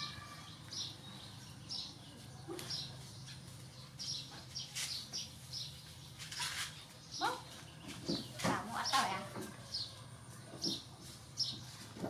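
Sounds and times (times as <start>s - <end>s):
small bird chirping: 0.0s - 11.9s.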